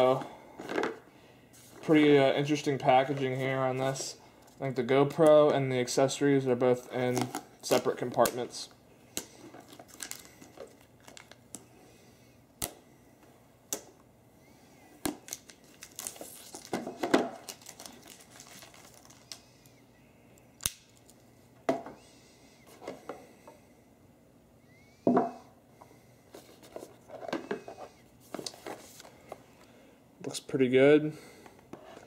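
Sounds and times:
plastic and cardboard crinkling and tearing: 9.5s - 11.4s, 15.2s - 19.4s.

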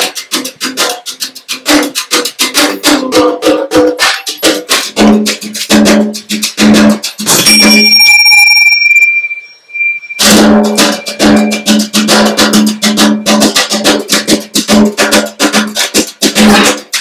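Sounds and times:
high ringing tone: 7.3s - 13.6s
fast plucked harp notes: 10.2s - 15.1s.

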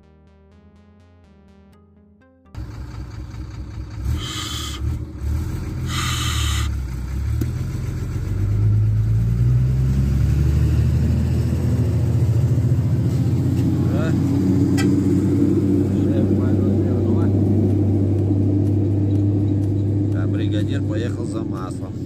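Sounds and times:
truck diesel engine running: 2.6s - 22.0s
air hisses: 5.9s - 6.7s.

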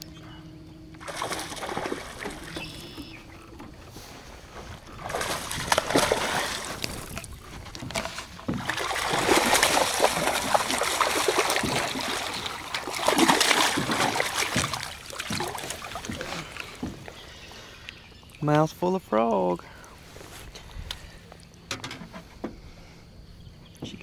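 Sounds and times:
fish splashing in water: 1.0s - 17.8s.

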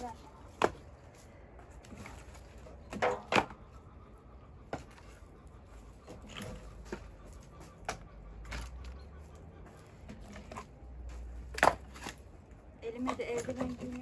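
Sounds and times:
firewood logs knocking: 2.8s - 3.6s, 11.4s - 12.2s.

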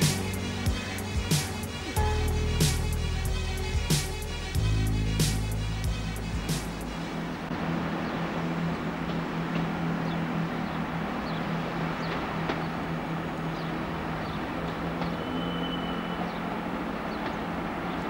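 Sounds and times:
diesel train engine hum: 0.0s - 18.0s
wheels rumbling on track: 0.0s - 18.0s
faint high squeaks: 15.0s - 16.6s.

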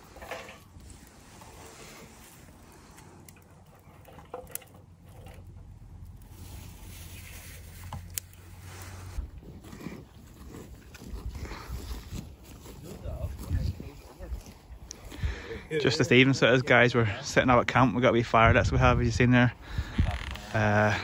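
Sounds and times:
twigs being handled: 0.0s - 15.1s
wood fire cracking: 0.0s - 15.4s, 18.5s - 21.0s
low steady rumble: 0.8s - 11.4s.

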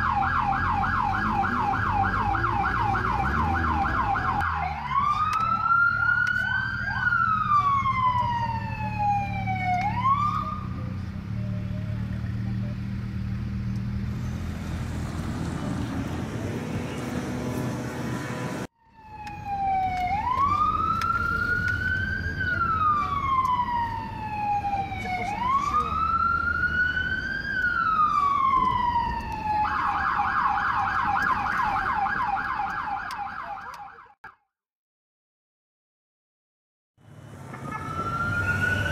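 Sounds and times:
siren rapid yelp: 0.0s - 10.7s, 18.8s - 34.2s, 37.5s - 38.9s
police siren wailing: 0.0s - 10.8s, 16.0s - 34.3s, 37.1s - 38.9s
car engine and road drone: 0.0s - 34.0s, 37.0s - 38.9s.

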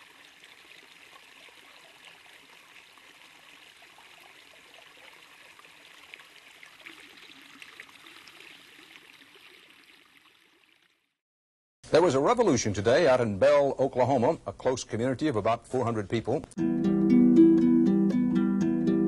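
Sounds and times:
faint flowing water: 0.0s - 11.2s.

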